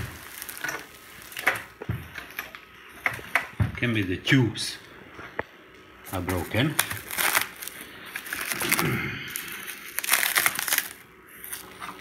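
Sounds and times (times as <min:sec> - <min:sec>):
plastic wrap crinkling: 0:00.0 - 0:03.3, 0:06.1 - 0:12.0.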